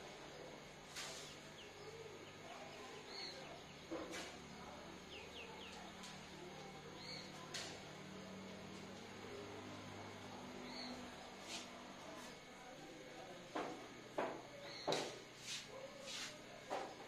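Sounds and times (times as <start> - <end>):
chalk scratching: 15.4 - 16.4.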